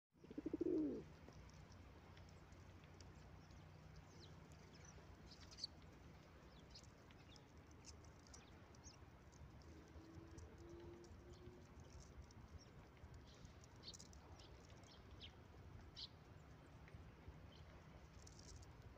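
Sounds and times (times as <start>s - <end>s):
faint high ticks: 1.2s - 15.3s.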